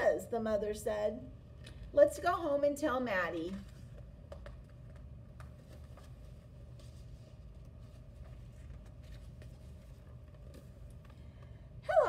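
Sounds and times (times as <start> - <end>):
low room hum: 0.0 - 12.0
book pages rustling: 3.6 - 11.3.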